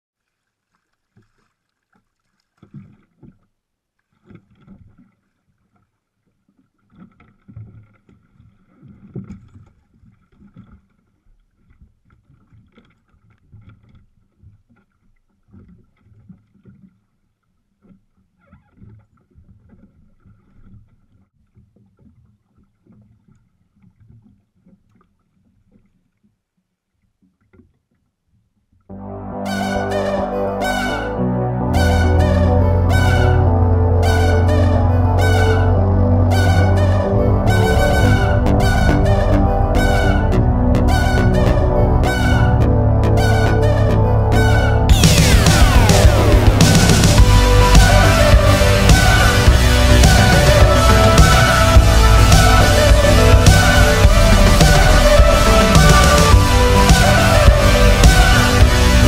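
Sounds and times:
water sloshing against hull: 0.2s - 28.9s.

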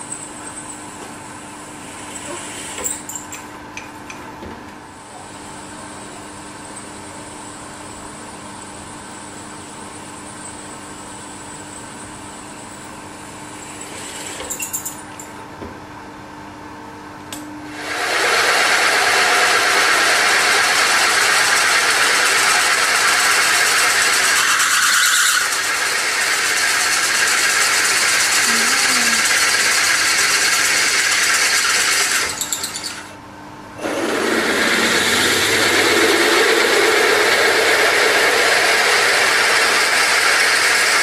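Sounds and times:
machine spindle running: 17.7s - 33.1s, 33.8s - 41.0s
drill bit cutting metal: 17.8s - 33.1s.

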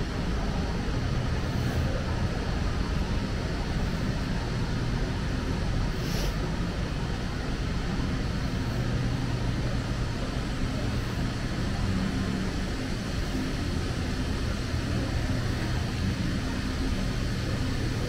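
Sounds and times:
low street hum: 0.0s - 18.0s.

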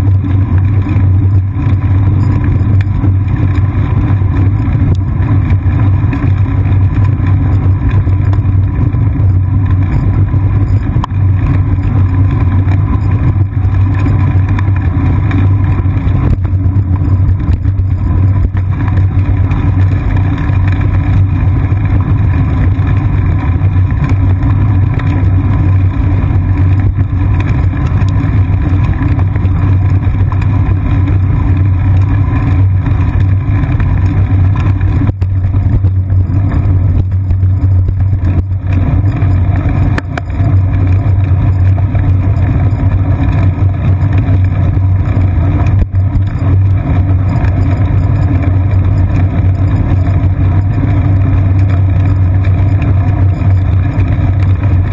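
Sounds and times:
wind and road rumble: 0.0s - 54.9s.

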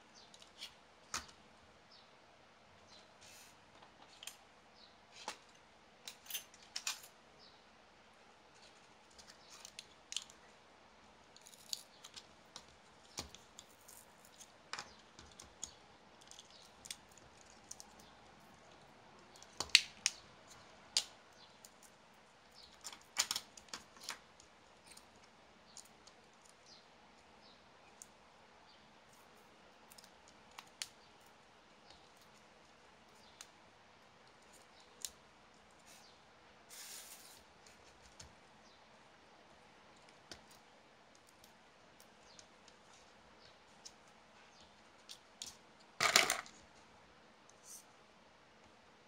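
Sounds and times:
plastic parts clicking and tapping: 46.0s - 46.6s.

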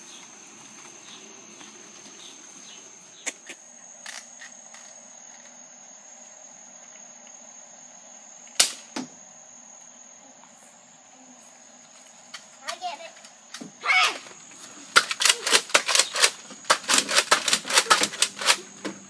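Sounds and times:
high-pitched insect trill: 0.0s - 19.0s
toy dart blaster shots: 8.6s - 9.0s, 15.0s - 18.6s.

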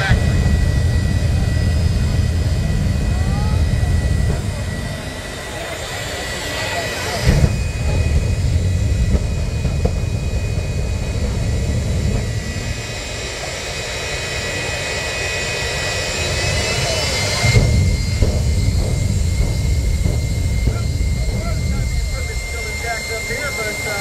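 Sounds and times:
jet engine whine and roar: 0.0s - 24.0s.

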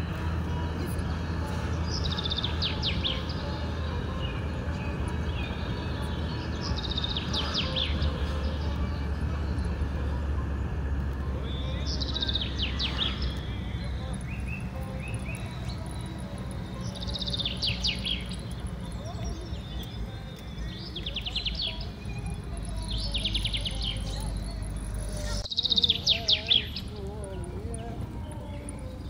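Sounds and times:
car road noise rumble: 0.0s - 29.0s.

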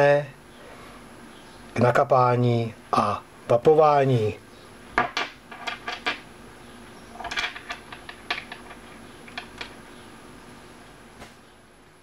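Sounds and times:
small metal parts clicking and scraping: 7.2s - 9.8s.

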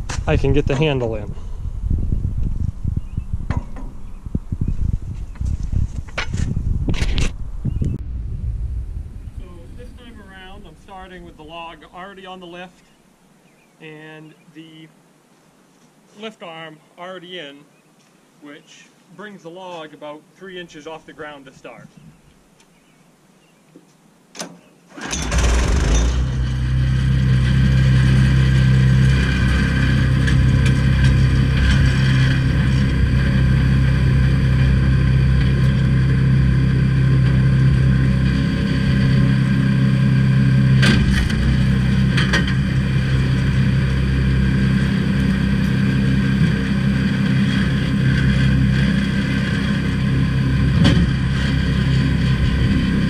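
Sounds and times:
sharp knocks: 3.5s - 4.0s
small gasoline engine running: 25.0s - 53.0s.

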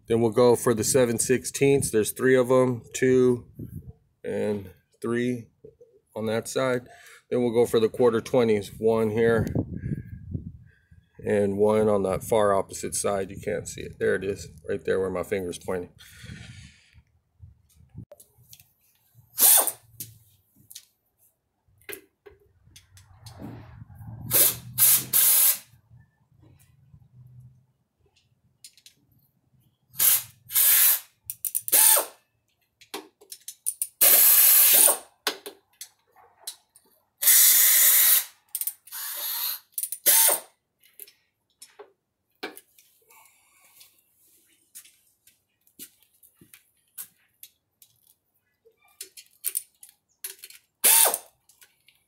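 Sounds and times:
ratchet wrench bursts: 19.4s - 19.8s, 24.3s - 25.7s, 29.9s - 32.2s, 33.8s - 35.0s, 37.2s - 40.5s, 50.8s - 51.3s.

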